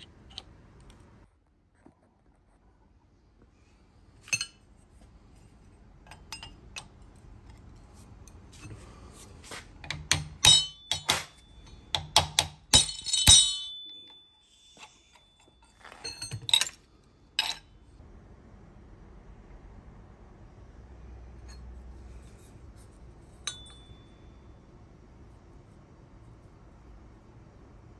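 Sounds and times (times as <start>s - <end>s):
hammer striking chisel on steel: 9.9s - 14.4s
light metallic clinks: 23.4s - 24.4s.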